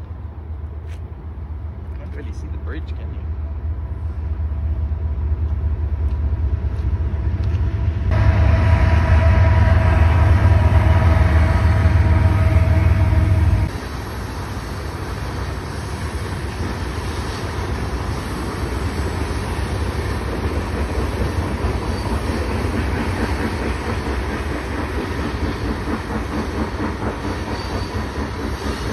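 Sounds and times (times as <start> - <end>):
train rumbling and clattering: 0.0 - 28.9
low hum: 3.4 - 13.7.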